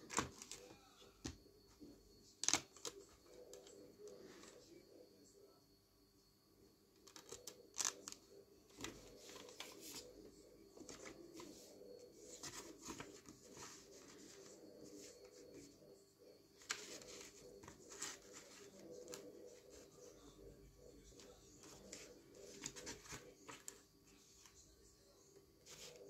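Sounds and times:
paper booklet leafed through: 0:10.8 - 0:15.7.

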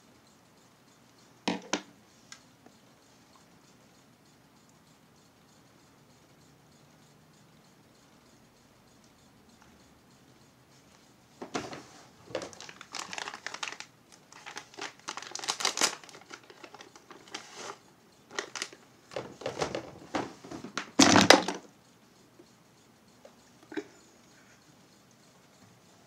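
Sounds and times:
crinkling of packaging: 0:12.3 - 0:19.8.

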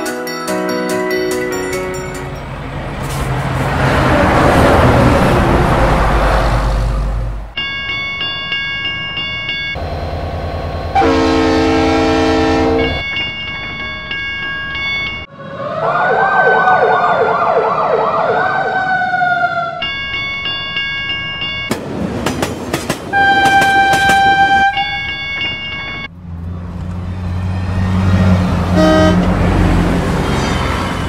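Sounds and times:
bus engine hum: 0:01.1 - 0:07.6, 0:09.8 - 0:16.0, 0:21.7 - 0:31.0
train rattling past: 0:01.2 - 0:07.4, 0:21.7 - 0:25.5, 0:26.8 - 0:31.0
traffic noise: 0:01.2 - 0:31.0
train horn blast: 0:10.9 - 0:13.0, 0:23.1 - 0:24.9, 0:28.7 - 0:29.4
horn chords: 0:11.0 - 0:13.0, 0:28.7 - 0:29.4
siren wailing: 0:15.0 - 0:20.5, 0:23.4 - 0:26.1.

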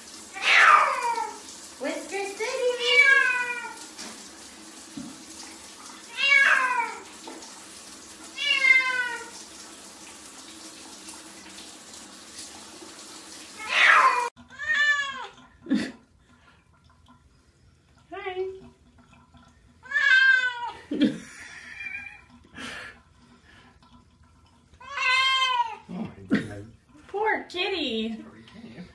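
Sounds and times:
running shower water: 0:00.0 - 0:28.9
cat meowing: 0:00.4 - 0:01.4, 0:02.8 - 0:03.8, 0:06.1 - 0:07.0, 0:08.4 - 0:09.3, 0:13.6 - 0:15.3, 0:19.9 - 0:20.8, 0:24.8 - 0:25.8.

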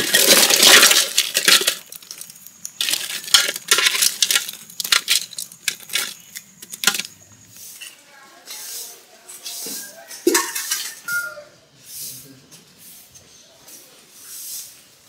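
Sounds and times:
dough balls clattering into metal bowl: 0:00.0 - 0:07.3
dough balls rattling in pile: 0:00.0 - 0:07.3.

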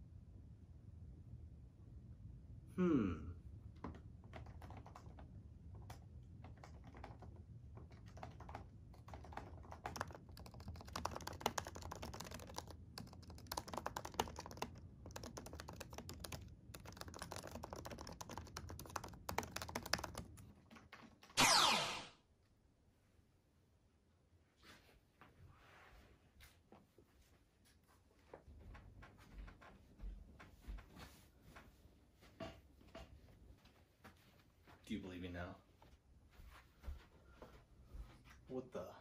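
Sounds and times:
laptop keyboard typing: 0:03.8 - 0:21.4
sweep falling in pitch: 0:21.4 - 0:22.2.

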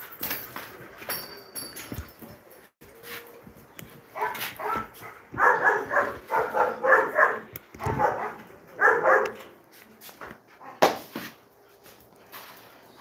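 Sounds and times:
dog barking: 0:04.1 - 0:09.5.

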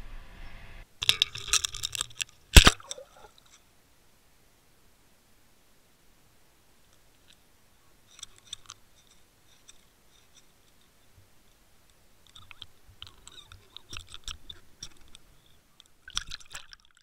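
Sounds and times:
sharp clicks underwater: 0:01.0 - 0:03.6, 0:12.2 - 0:17.0.

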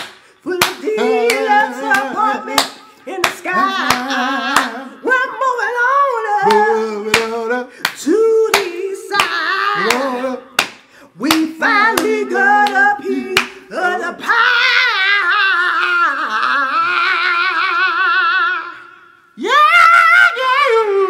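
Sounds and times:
hand claps: 0:00.0 - 0:04.8, 0:06.5 - 0:13.6
man's voice: 0:00.4 - 0:17.8
woman singing into microphone: 0:00.5 - 0:07.5.

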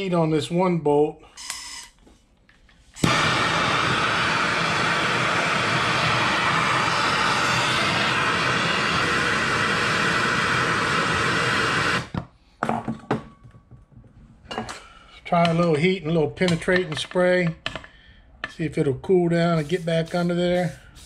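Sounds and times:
gas torch hissing: 0:03.0 - 0:12.2, 0:19.6 - 0:21.0.

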